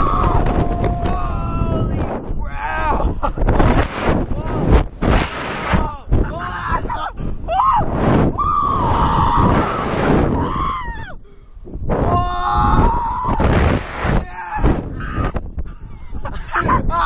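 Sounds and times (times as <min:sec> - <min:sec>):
people screaming: 0:00.0 - 0:01.9, 0:07.5 - 0:11.2, 0:12.1 - 0:13.6
wind rushing over microphone: 0:00.0 - 0:17.0.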